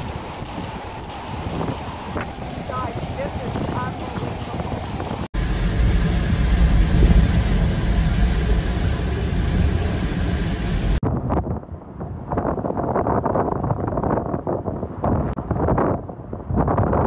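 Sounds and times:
hurricane wind: 0.0 - 17.0
driving rain: 5.4 - 11.0.

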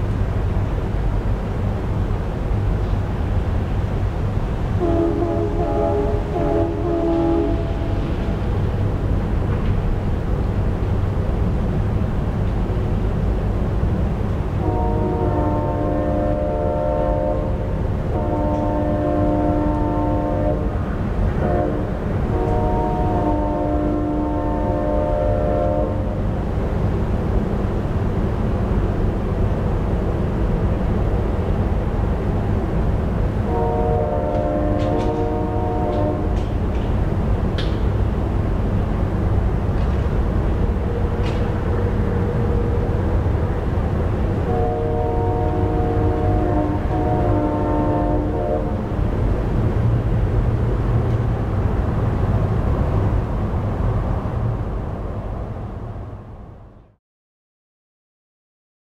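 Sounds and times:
distant train horn chord: 4.7 - 8.6, 14.6 - 26.4, 33.4 - 36.7, 40.7 - 49.2.

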